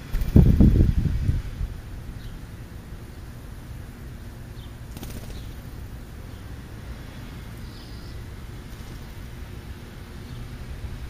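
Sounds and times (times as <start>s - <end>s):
wings fluttering: 0.0s - 0.9s, 4.8s - 5.9s
low outdoor rumble: 0.0s - 11.0s
faint high bird calls: 7.6s - 8.3s.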